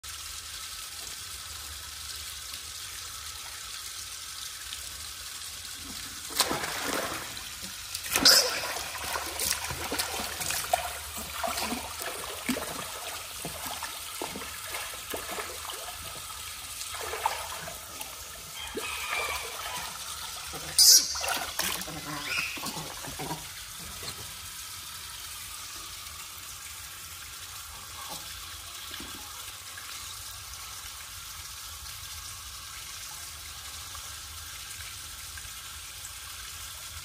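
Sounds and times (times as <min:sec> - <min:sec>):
water running: 0:00.1 - 0:30.7
splashing in shallow water: 0:06.3 - 0:23.4.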